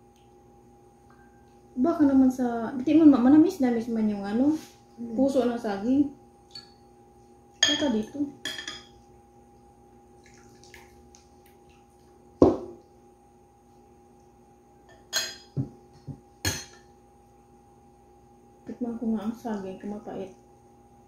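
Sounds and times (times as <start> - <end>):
spoon clinking against bowl: 6.5 - 6.8, 7.6 - 9.0
bowl set down with knock: 12.4 - 12.8.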